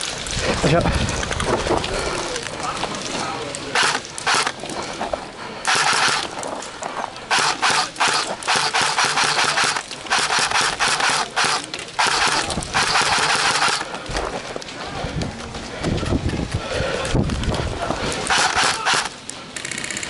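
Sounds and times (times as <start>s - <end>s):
airsoft guns firing rapid bursts: 3.8s - 4.6s, 5.7s - 6.3s, 7.3s - 13.9s, 18.3s - 20.0s.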